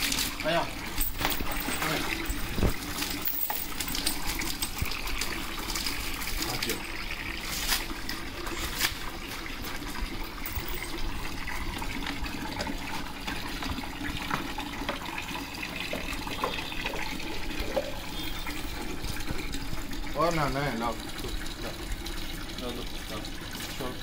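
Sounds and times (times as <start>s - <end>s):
water running: 0.0s - 24.0s.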